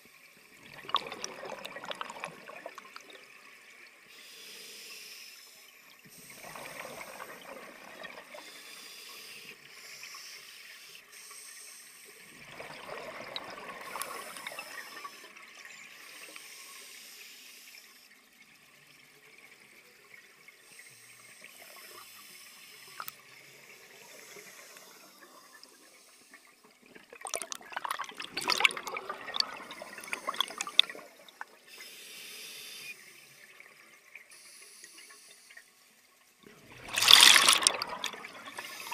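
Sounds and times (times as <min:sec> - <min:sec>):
bubbling exhalation underwater: 0:00.6 - 0:03.0, 0:27.2 - 0:31.2, 0:36.6 - 0:38.7
scuba regulator inhalation hiss: 0:04.1 - 0:07.5, 0:08.4 - 0:12.3, 0:13.8 - 0:18.1, 0:20.7 - 0:26.4, 0:31.7 - 0:33.1, 0:34.3 - 0:35.6, 0:38.6 - 0:38.9.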